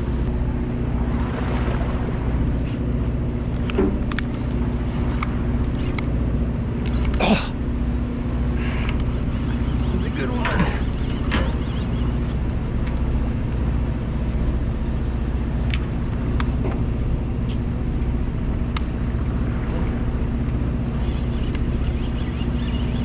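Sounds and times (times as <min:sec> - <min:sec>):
boat motor humming: 0:00.0 - 0:23.0
faint clicks: 0:08.8 - 0:09.7, 0:21.4 - 0:22.2.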